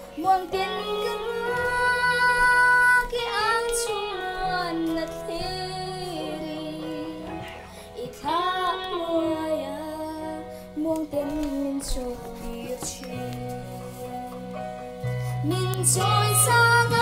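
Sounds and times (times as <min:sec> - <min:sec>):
girl singing: 0:00.0 - 0:14.2, 0:15.4 - 0:17.0
soft musical accompaniment: 0:00.0 - 0:17.0.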